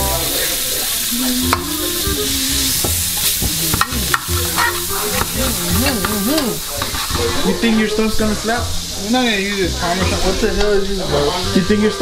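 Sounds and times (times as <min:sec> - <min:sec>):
butter sizzling in a frying pan: 0:00.0 - 0:12.0
utensil clicking and scraping pan: 0:03.2 - 0:05.4, 0:06.0 - 0:07.2.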